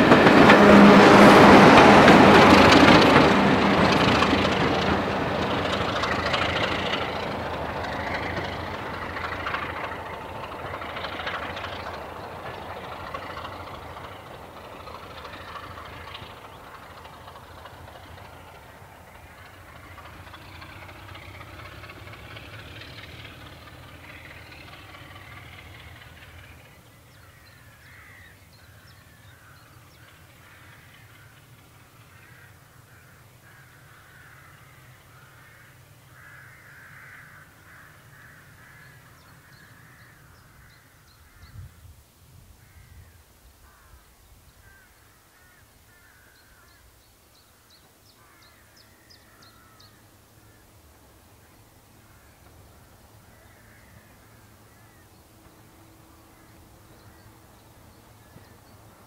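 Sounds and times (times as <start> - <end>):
diesel locomotive engine rumbling: 0.0 - 59.0
crows cawing: 27.2 - 41.6, 42.6 - 46.8, 48.2 - 50.8, 51.4 - 52.6, 53.2 - 55.2.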